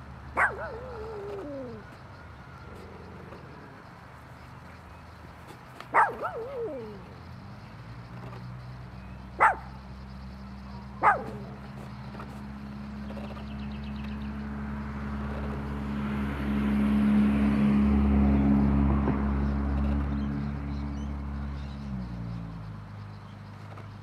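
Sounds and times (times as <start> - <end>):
small dog barking: 0.4 - 1.8, 5.9 - 7.1, 9.4 - 9.8, 11.0 - 11.6.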